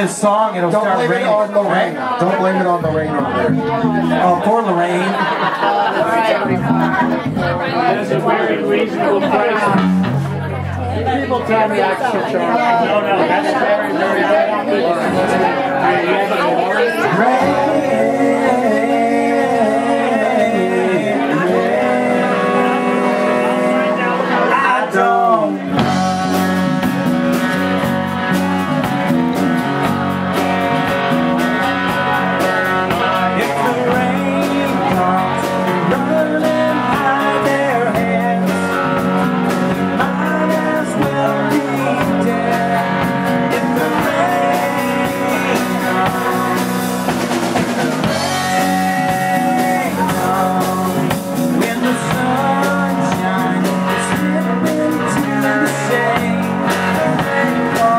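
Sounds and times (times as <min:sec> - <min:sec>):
electric bass: 0:00.0 - 0:05.2, 0:06.3 - 0:11.9, 0:15.0 - 0:57.9
acoustic guitar: 0:00.0 - 0:57.9
electric guitar: 0:02.8 - 0:57.9
drum kit: 0:09.6 - 0:10.8, 0:17.1 - 0:57.9
man singing: 0:12.6 - 0:26.8, 0:30.8 - 0:57.9.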